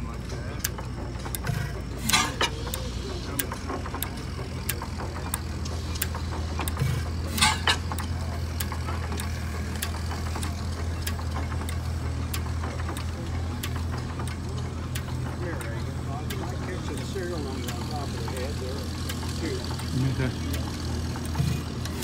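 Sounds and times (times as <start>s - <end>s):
stationary engine running: 0.0s - 22.0s.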